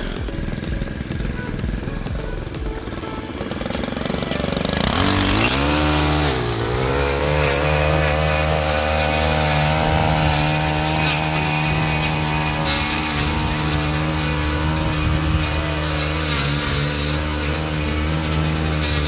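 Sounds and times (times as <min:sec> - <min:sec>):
blade cutting grass: 0:00.0 - 0:19.0
edger engine revving: 0:00.0 - 0:19.0.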